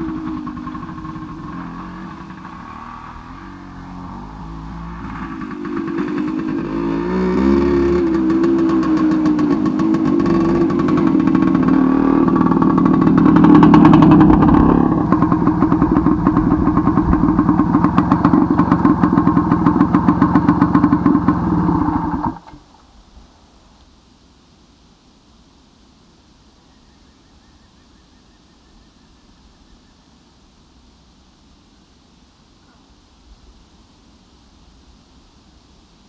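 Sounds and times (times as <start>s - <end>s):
motorcycle engine running: 0.0s - 22.5s.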